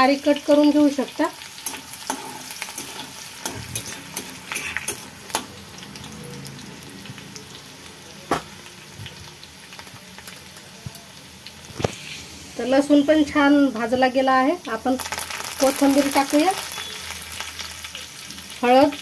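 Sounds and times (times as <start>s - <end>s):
spices sizzling in hot oil: 0.0s - 19.0s
metal spatula stirring: 1.6s - 5.2s.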